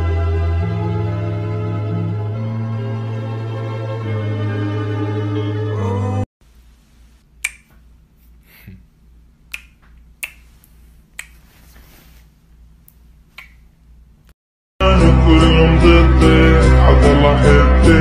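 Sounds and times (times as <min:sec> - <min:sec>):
lip smack kisses: 0:07.4 - 0:08.7, 0:09.5 - 0:11.6, 0:12.8 - 0:13.7.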